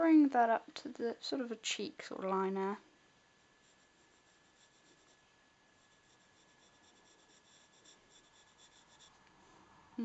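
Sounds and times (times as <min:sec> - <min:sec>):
pencil scratching on paper: 0:03.4 - 0:09.2.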